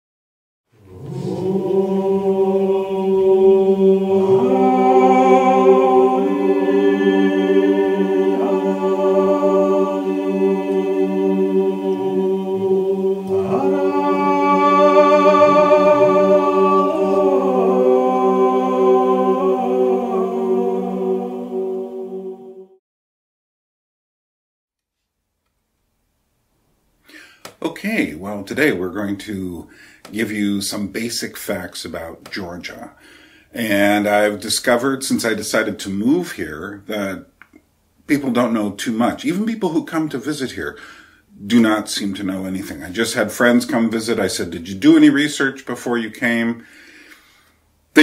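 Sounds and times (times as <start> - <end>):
held bass drone: 0.8 - 22.4
choir singing a cappella: 0.8 - 22.8.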